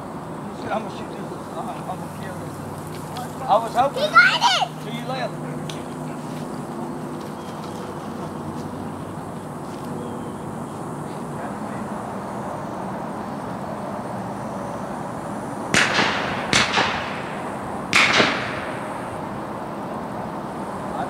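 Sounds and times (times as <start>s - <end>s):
shotgun shots with echo: 15.7s - 19.3s.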